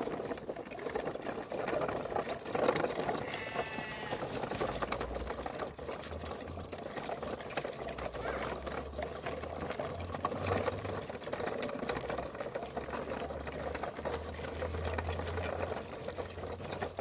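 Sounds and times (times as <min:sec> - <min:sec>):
toy wheels rattling on gravel: 0:00.0 - 0:17.0.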